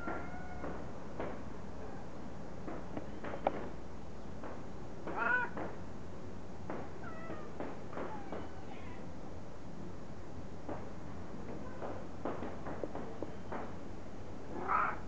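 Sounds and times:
cat meowing: 0:00.0 - 0:00.8, 0:05.1 - 0:05.6, 0:07.0 - 0:07.5, 0:14.5 - 0:15.0.

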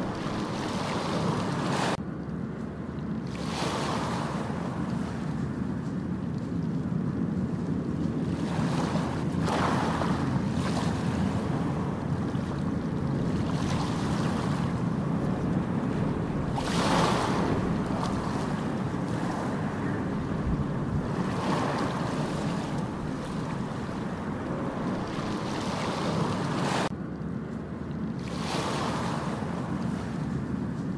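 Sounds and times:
steady rushing noise: 0:03.4 - 0:27.1.

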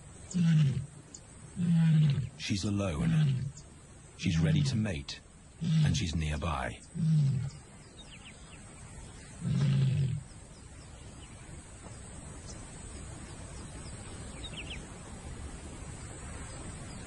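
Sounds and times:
faint outdoor background: 0:00.0 - 0:17.0
lion call: 0:00.3 - 0:01.0, 0:01.6 - 0:03.6, 0:05.6 - 0:07.7, 0:09.3 - 0:10.3.

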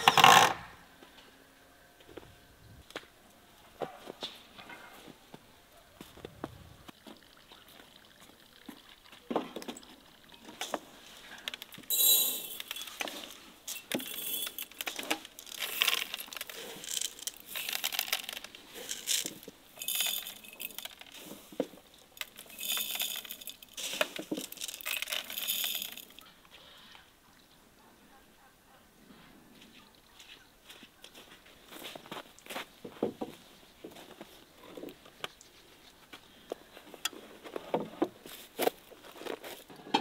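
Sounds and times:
grains rattling in jars: 0:09.8 - 0:26.3
glass jars clinking on wooden table: 0:11.9 - 0:14.8.

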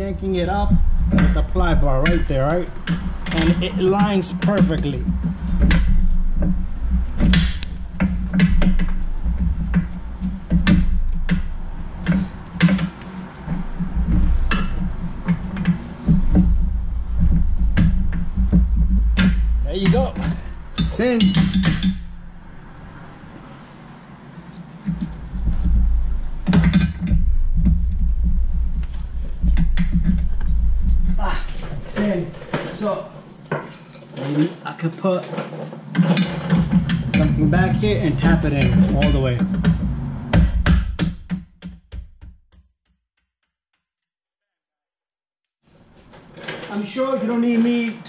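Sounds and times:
steady low hum: 0:00.0 - 0:33.8, 0:36.2 - 0:41.3
metal clanks and scrapes: 0:24.4 - 0:39.9.

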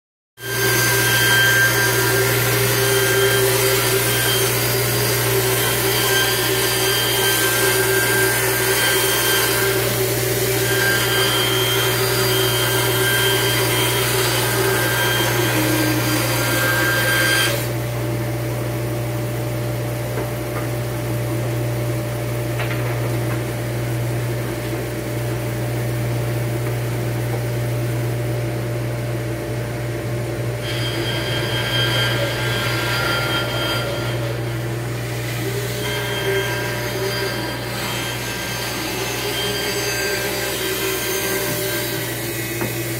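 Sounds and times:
band saw cutting wood: 0:00.4 - 0:18.0, 0:30.6 - 0:42.9
dust collector humming: 0:00.4 - 0:42.9.

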